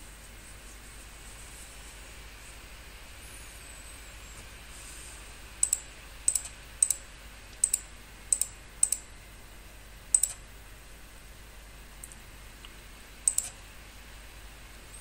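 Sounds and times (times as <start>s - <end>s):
faint steady hiss: 0.0s - 15.0s
computer mouse button clicks: 7.6s - 9.0s, 10.1s - 10.4s, 13.3s - 13.5s.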